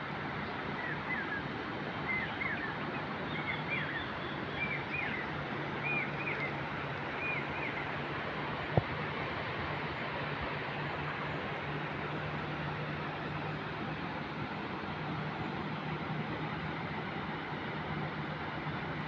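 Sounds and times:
rush of outdoor noise: 0.0 - 19.0
bird chirping: 2.1 - 6.6.

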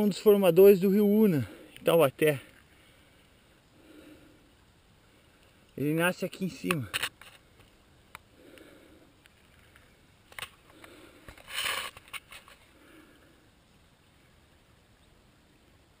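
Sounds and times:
brief rustle: 9.3 - 12.7.

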